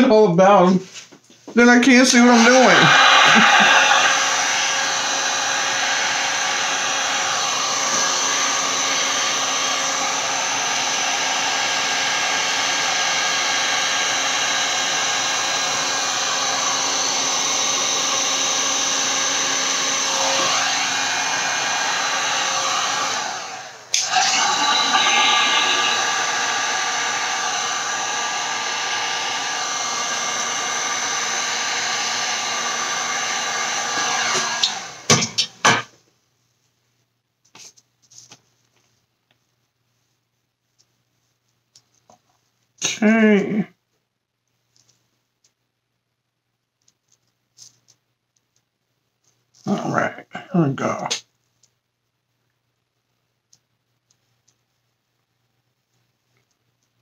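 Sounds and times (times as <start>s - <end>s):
heat gun blowing: 1.9s - 35.8s.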